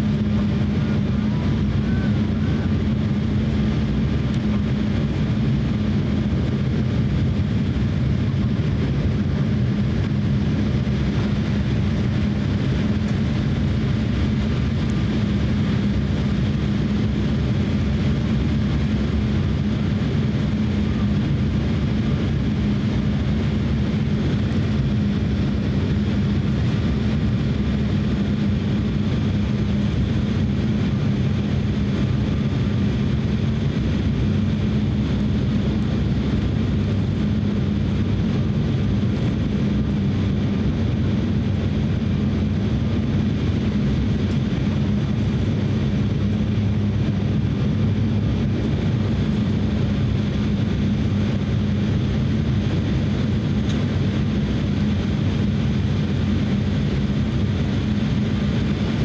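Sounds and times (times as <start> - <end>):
airflow rush: 0.0 - 59.0
jet engine cabin drone: 0.0 - 59.0.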